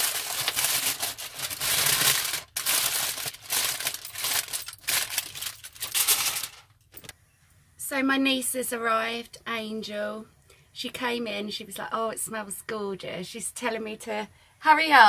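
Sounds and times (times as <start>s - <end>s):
aluminium foil crinkling: 0.0s - 7.1s.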